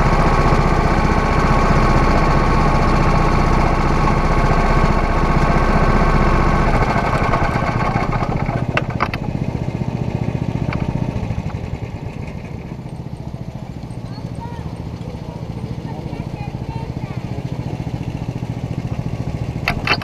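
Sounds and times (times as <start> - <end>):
go-kart engine idling: 0.0 - 20.0
sharp knocks: 19.6 - 20.0.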